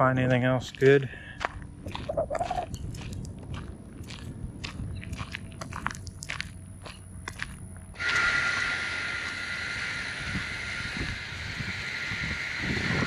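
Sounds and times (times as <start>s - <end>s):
footsteps crunching on gravel: 0.0s - 8.7s.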